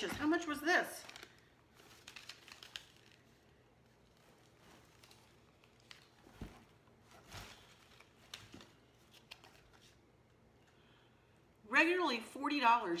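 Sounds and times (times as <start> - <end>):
soft rustle: 1.0 - 10.0.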